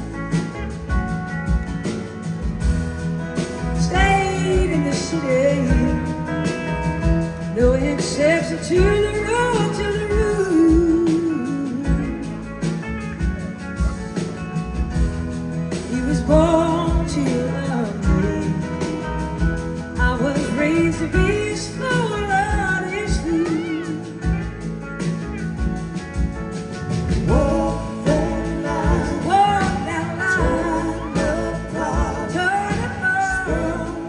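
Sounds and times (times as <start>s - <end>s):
blues-rock band playing: 0.0s - 34.0s
lead vocal singing: 3.3s - 12.8s, 15.7s - 25.7s, 26.9s - 34.0s.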